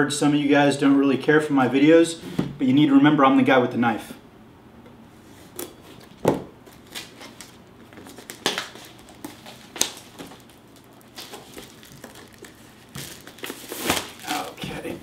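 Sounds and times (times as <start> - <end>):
plastic wrap crinkling: 5.6 - 15.0
knife slitting shrink-wrap: 11.2 - 14.5.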